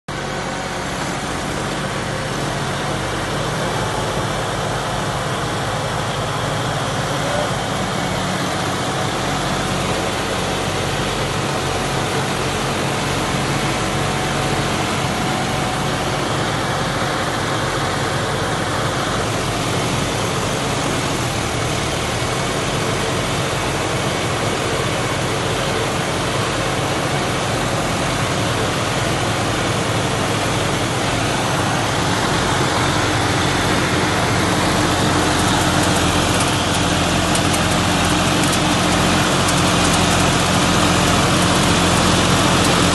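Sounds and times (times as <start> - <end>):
tractor diesel engines running: 0.1 - 42.9.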